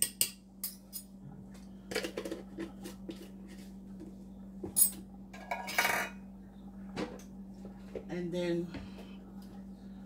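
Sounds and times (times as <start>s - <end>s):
steady low hum: 0.0s - 10.0s
kitchen utensils clinking: 4.8s - 6.2s.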